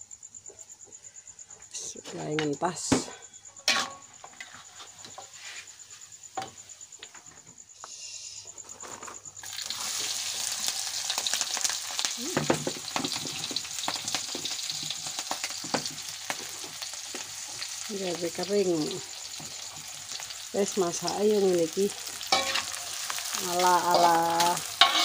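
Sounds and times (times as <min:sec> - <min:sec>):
vegetables sizzling in hot oil: 0:09.4 - 0:25.0.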